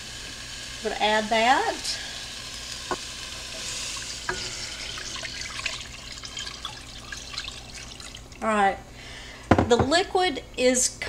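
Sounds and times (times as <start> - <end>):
broth pouring into pot: 0.0 - 9.3.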